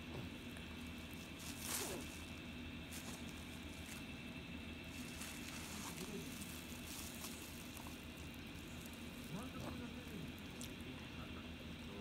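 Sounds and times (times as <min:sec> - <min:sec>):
steady low hum: 0:00.0 - 0:12.0
plastic wrap crinkling: 0:04.9 - 0:10.8.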